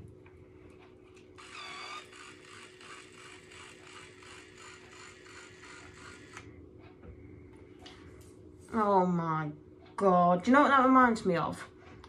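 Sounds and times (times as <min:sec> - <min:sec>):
hair styler ratcheting rattle: 0:01.4 - 0:06.4
motorised hair styler whine: 0:01.4 - 0:06.5.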